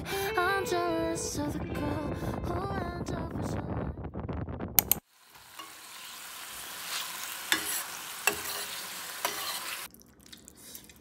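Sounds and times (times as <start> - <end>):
small clicks: 4.8 - 5.0.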